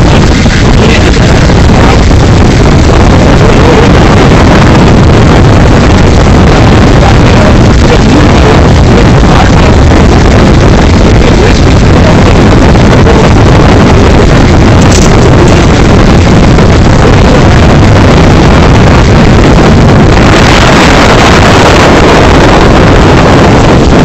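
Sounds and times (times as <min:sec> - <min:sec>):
man speaking into a microphone: 0:00.0 - 0:02.1, 0:06.9 - 0:09.9, 0:11.1 - 0:13.3
loud distorted noise: 0:00.0 - 0:24.0.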